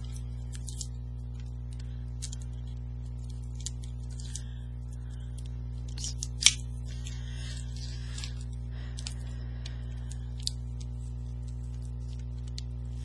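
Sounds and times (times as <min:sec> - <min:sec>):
card strip rustling and tapping: 0:00.0 - 0:13.0
low electrical hum: 0:00.0 - 0:13.0.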